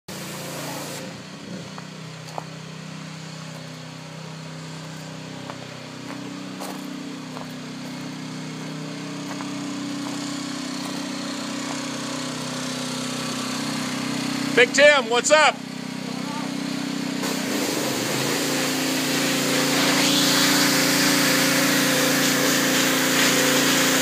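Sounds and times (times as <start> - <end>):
pressure washer hiss: 0.1 - 1.1, 17.2 - 24.0
pressure washer engine running: 0.1 - 24.0.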